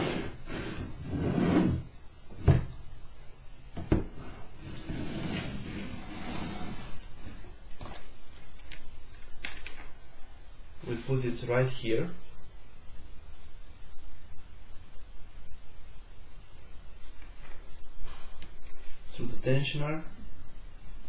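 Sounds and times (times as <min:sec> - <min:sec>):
frame scraping on wooden table: 0:00.0 - 0:01.8, 0:04.1 - 0:07.0
small clicks and rustling: 0:07.7 - 0:09.9.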